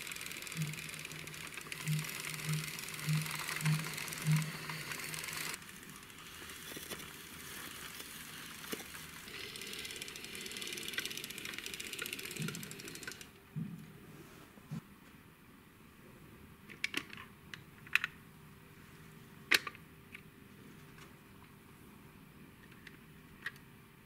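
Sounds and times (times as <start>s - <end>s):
toy truck wheels rattling: 0.0s - 13.3s.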